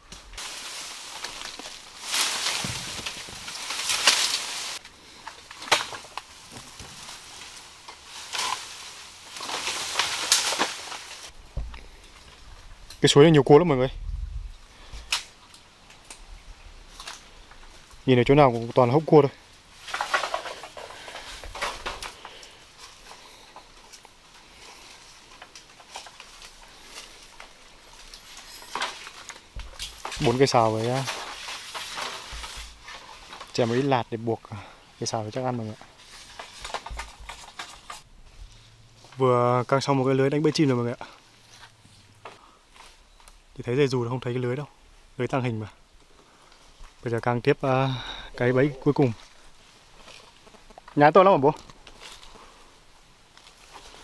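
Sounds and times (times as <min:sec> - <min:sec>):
sharp crack: 0:00.0 - 0:11.8
faint steady hiss: 0:00.0 - 0:54.0
footsteps crunching dry leaves: 0:00.1 - 0:11.4, 0:24.2 - 0:34.0.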